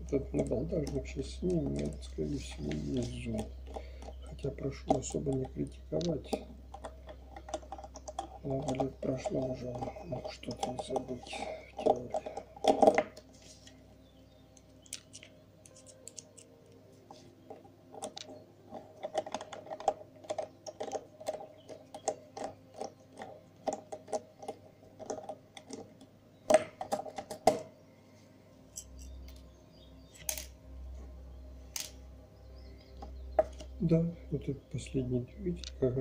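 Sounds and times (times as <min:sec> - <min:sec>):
screwdriver clicking on plastic parts: 0:14.8 - 0:16.5.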